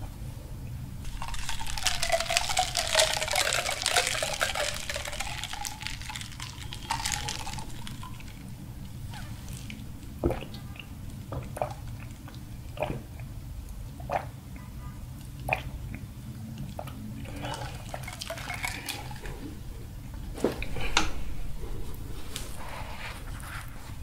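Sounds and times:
slurping through straws: 0:01.0 - 0:09.8.

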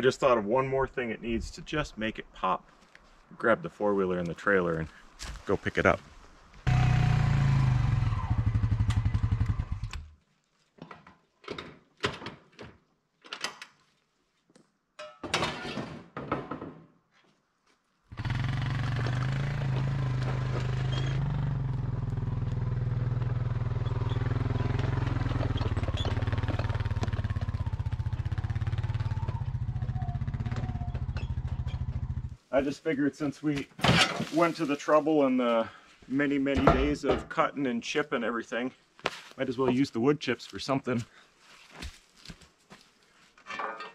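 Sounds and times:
atv engine droning: 0:06.7 - 0:10.0, 0:18.1 - 0:32.4.

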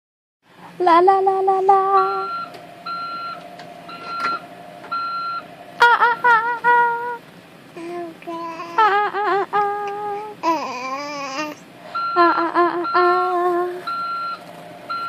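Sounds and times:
high voice singing: 0:00.8 - 0:02.4, 0:05.8 - 0:07.2, 0:07.8 - 0:11.6, 0:12.2 - 0:13.9
short electronic beeps: 0:13.9 - 0:15.0.

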